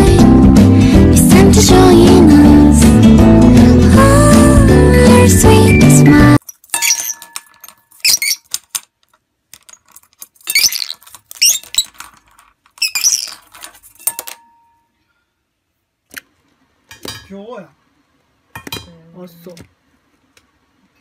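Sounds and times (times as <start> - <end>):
clothespin clattering in metal pot: 6.4 - 8.4.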